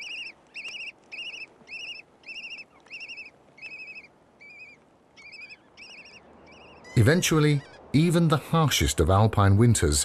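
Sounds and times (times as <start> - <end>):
parrot chick begging calls: 0.0 - 7.0.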